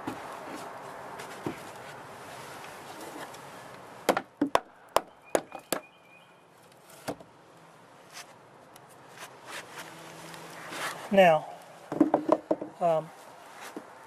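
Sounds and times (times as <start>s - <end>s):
knocks on wooden staircase: 11.9s - 12.8s.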